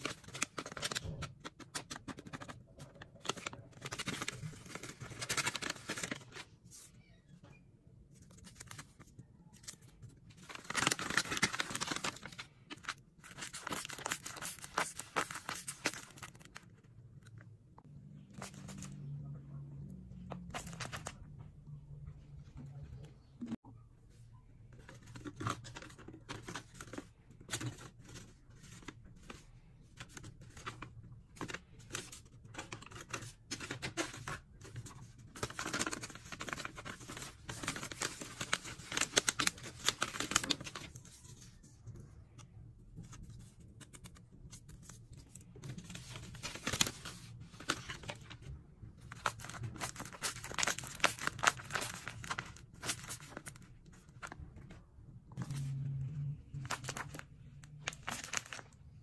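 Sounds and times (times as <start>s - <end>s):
paper rustling and tearing: 10.4s - 16.5s, 45.7s - 48.4s, 49.1s - 53.6s.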